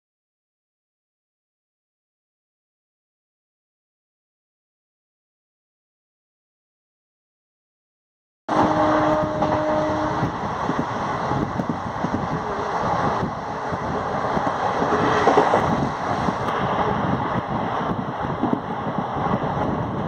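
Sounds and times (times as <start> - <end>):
train wheel and rail noise: 8.5 - 20.0
wind rushing: 8.5 - 20.0.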